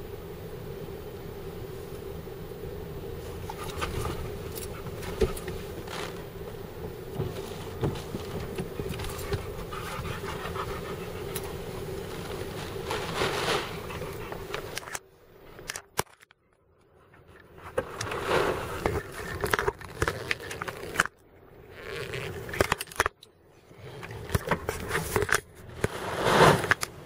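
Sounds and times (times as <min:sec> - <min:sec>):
surf breaking against seawall: 0:18.0 - 0:19.2, 0:25.7 - 0:27.0.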